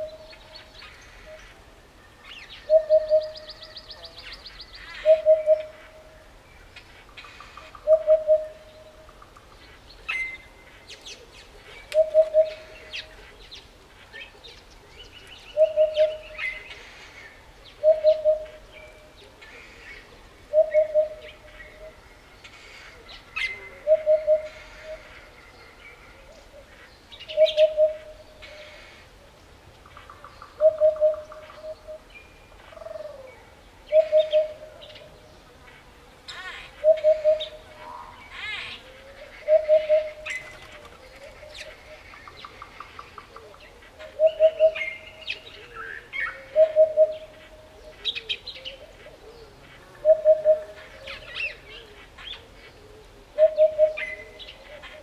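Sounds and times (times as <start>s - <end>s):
small birds chirping: 0.0s - 55.0s
hoopoe song: 17.8s - 28.6s, 36.3s - 55.0s.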